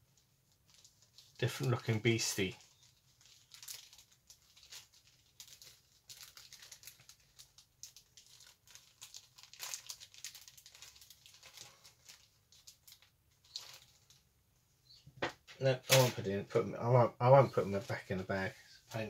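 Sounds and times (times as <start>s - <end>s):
plastic bag crinkling: 0.5s - 14.3s, 15.9s - 16.2s.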